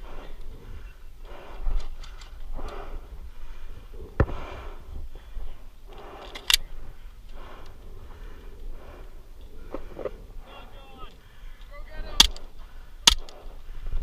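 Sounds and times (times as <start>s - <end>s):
heavy breathing: 0.0s - 14.0s
pistol reloading clicks: 5.9s - 6.7s, 12.2s - 13.5s.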